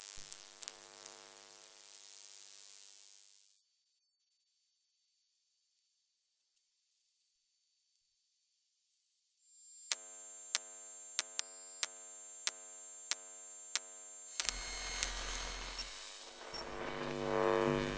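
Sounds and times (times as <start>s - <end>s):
high-pitched electronic whine: 2.4s - 10.2s, 14.3s - 17.9s
sharp clicks: 10.6s - 11.5s, 14.4s - 15.9s.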